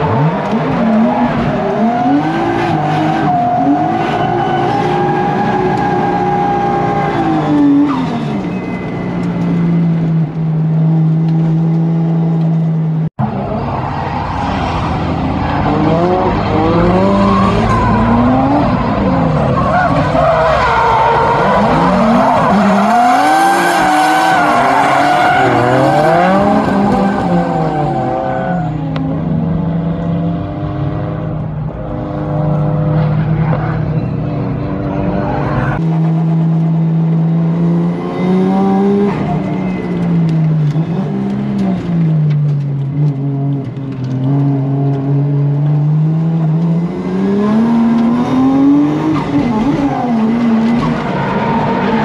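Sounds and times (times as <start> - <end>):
car engines revving: 0.0 - 52.0
tyre squeal: 0.1 - 9.8.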